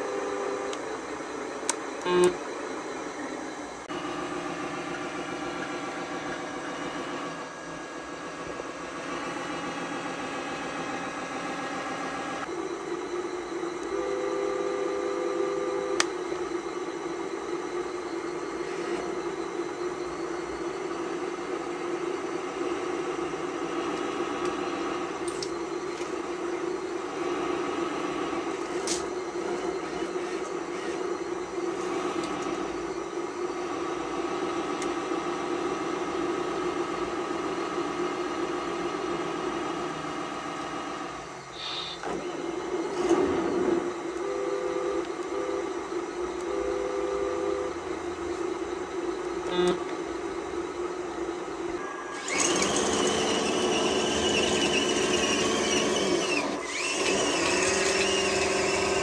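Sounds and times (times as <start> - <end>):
model vehicle motors droning: 51.7 - 59.0.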